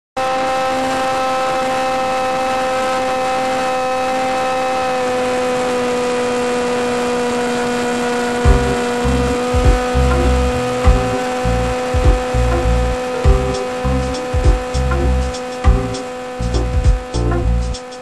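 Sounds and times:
electric motor and propeller whine: 0.2s - 18.0s
low uneven rumble: 8.5s - 17.8s.

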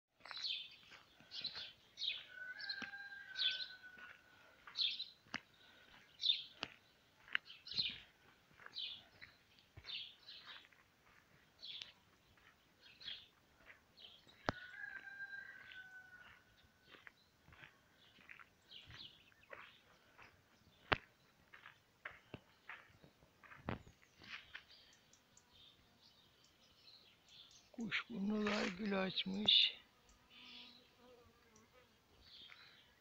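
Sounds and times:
footsteps on gravel: 0.2s - 24.9s, 27.9s - 29.6s
rooster crowing: 2.2s - 4.3s, 14.4s - 16.6s.

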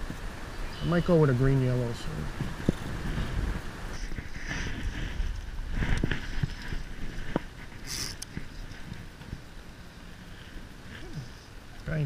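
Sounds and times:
rustles: 0.0s - 12.0s
wind buffeting microphone: 1.6s - 9.6s
short high hiss: 7.8s - 8.3s.

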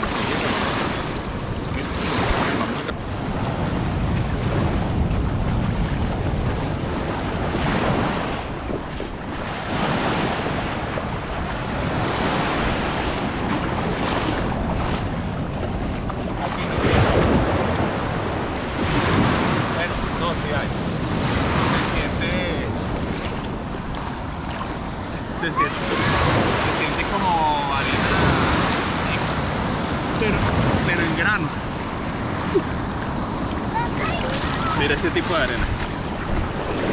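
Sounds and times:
small waves breaking on shore: 0.0s - 36.9s
wind buffeting microphone: 0.0s - 36.9s.

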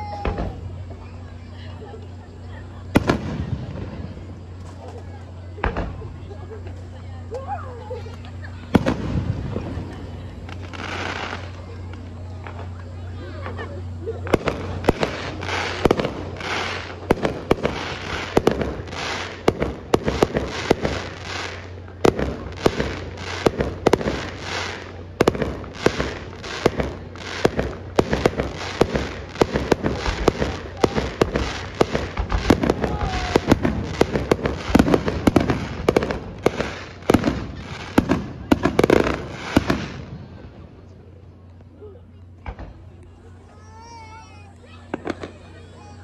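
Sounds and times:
firework shells bursting: 14.2s - 40.1s.

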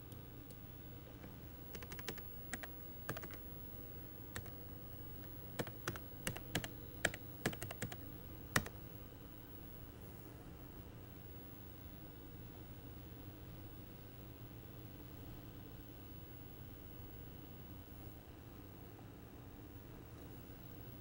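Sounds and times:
faint low hum: 0.0s - 21.0s
keyboard typing clicks: 1.2s - 3.4s, 4.4s - 4.6s, 5.2s - 8.7s.

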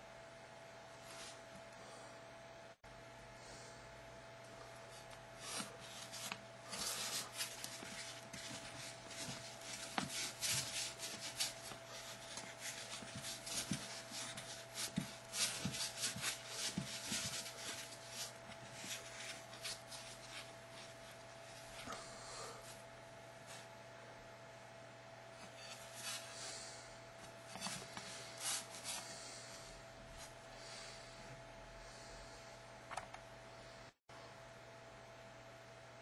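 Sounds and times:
faint steady hum: 0.0s - 36.0s
scratching and rubbing on foam: 5.4s - 21.2s, 27.6s - 29.3s.

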